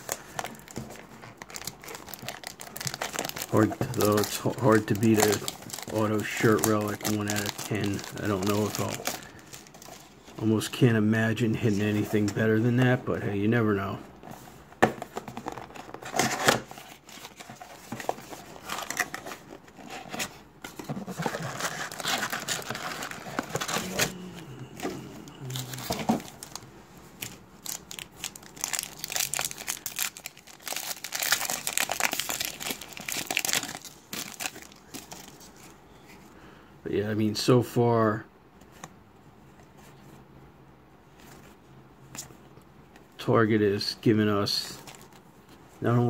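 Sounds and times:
foil wrappers crinkling: 0:00.0 - 0:10.0, 0:21.1 - 0:24.2, 0:25.4 - 0:35.7.

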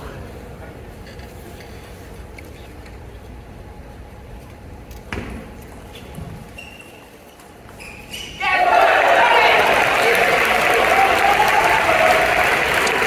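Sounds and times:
murmur of arena crowd: 0:05.7 - 0:13.0
brief high squeak: 0:06.5 - 0:08.4.

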